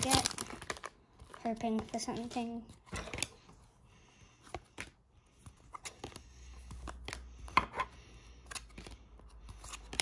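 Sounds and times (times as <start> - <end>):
cards being flicked through: 4.4 - 10.0.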